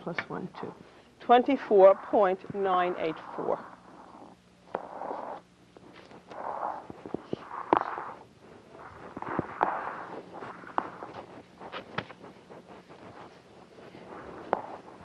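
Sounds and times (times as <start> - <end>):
faint low hum: 0.0 - 15.0
soft rustling: 0.6 - 15.0.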